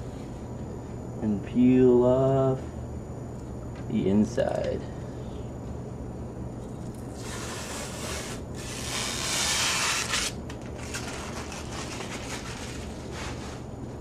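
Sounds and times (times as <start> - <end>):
plastic film peeling: 7.1 - 13.7
plastic film rustling: 7.2 - 13.7.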